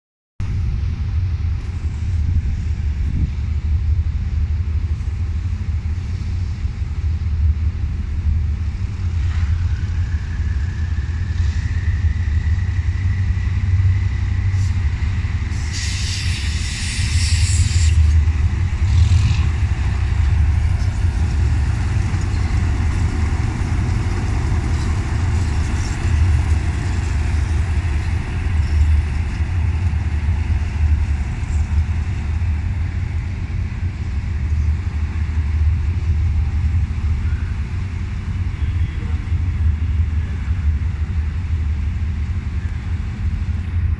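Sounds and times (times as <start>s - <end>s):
locomotive engine rumbling: 0.4s - 43.9s
air hissing: 15.5s - 19.7s.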